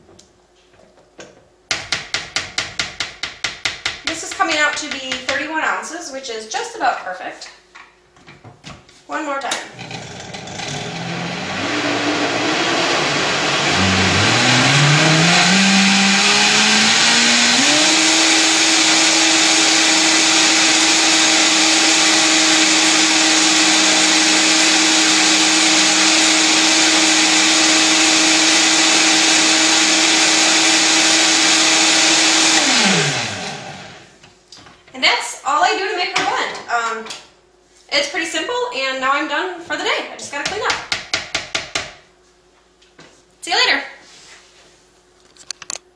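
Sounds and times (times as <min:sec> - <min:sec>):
blender motor running: 0:09.7 - 0:34.1.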